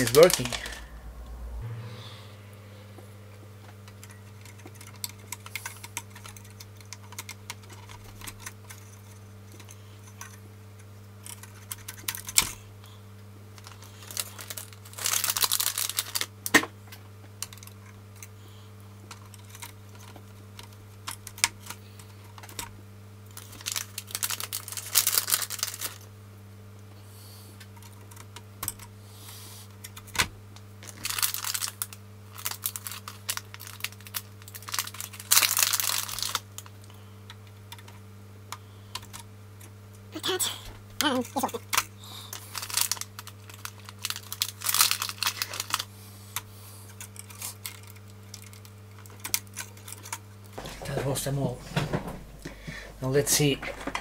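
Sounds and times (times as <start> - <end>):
plastic bag crinkling: 0.0 - 1.0, 13.6 - 16.4, 23.4 - 26.1, 30.8 - 36.8, 41.1 - 45.9
steady low hum: 0.0 - 54.0.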